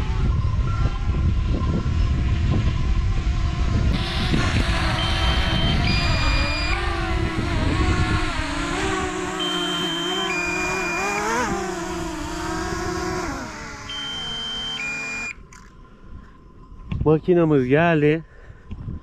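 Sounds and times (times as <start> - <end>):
wind rumble on microphone: 0.0 - 9.4, 16.0 - 17.3, 18.4 - 19.0
drone propellers whining: 3.3 - 15.6
two-tone warning beep: 4.0 - 6.8, 9.3 - 12.0, 12.7 - 15.4.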